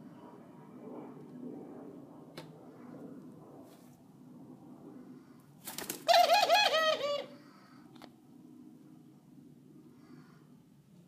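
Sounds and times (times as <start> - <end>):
young dove squeaky calls: 6.1 - 7.4.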